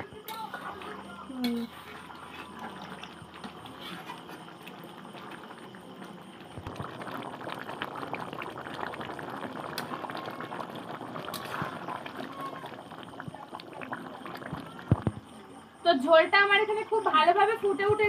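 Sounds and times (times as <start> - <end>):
curry bubbling at a boil: 0.0 - 18.0
metal spatula stirring: 0.2 - 4.6.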